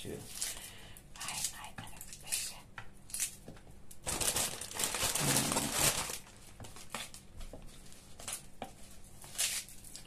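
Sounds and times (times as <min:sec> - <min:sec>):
plastic wrapping crinkling: 0:03.1 - 0:10.0.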